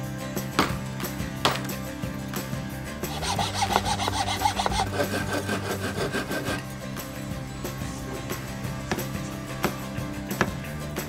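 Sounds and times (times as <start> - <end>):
hand saw cutting wood: 3.0 - 6.8.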